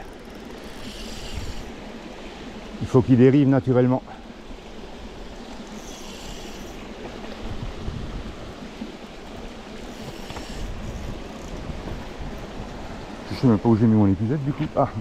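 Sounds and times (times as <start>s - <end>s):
high hiss: 0.5s - 2.4s, 5.5s - 7.0s, 9.8s - 11.2s
wind noise: 7.2s - 8.9s, 9.9s - 13.7s.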